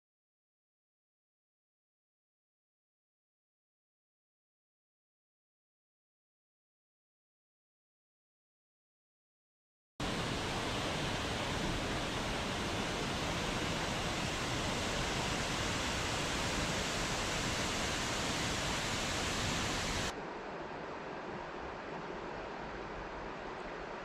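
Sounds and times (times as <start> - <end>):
waterfall rushing: 10.0 - 20.2.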